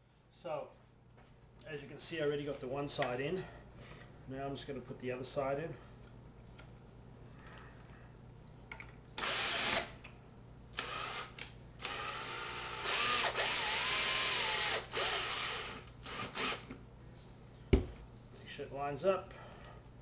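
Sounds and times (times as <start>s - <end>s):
cordless drill spinning: 9.2s - 10.0s, 10.8s - 16.7s.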